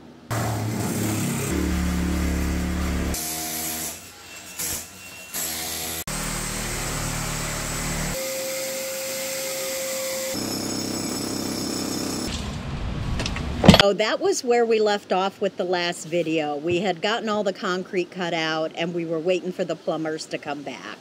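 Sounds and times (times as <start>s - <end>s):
demolition power tools and machinery: 0.3s - 13.5s.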